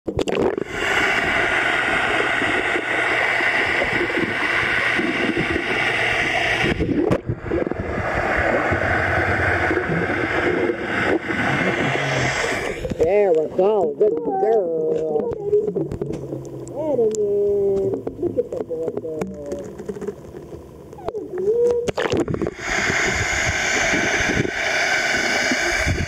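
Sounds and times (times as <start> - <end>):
underwater rushing and bubbling: 0.1 - 26.0.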